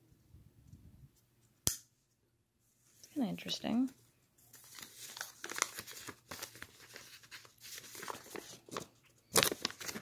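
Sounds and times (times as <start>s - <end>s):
paper leaflet rustling: 3.8s - 10.0s.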